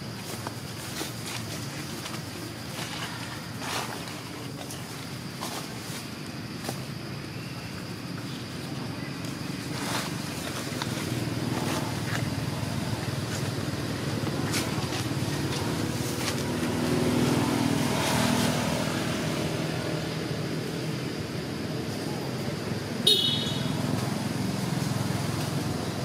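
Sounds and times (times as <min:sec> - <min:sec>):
vehicle engine running: 0:06.4 - 0:26.0.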